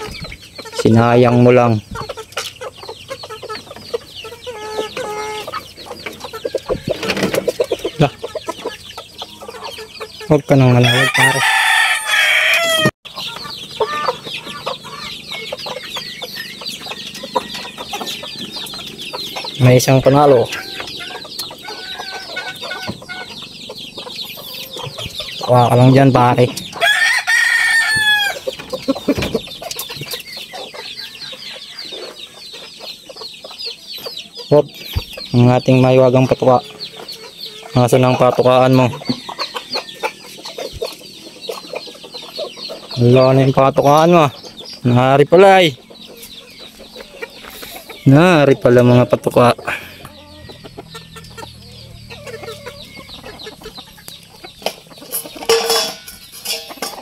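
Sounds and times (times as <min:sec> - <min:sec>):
chickens clucking: 0:00.0 - 0:57.0
chicks cheeping: 0:00.0 - 0:57.0
loud chicken call: 0:10.6 - 0:15.5, 0:20.3 - 0:23.4, 0:26.7 - 0:29.2
rooster crowing: 0:10.8 - 0:13.0, 0:26.8 - 0:28.5, 0:39.0 - 0:40.2.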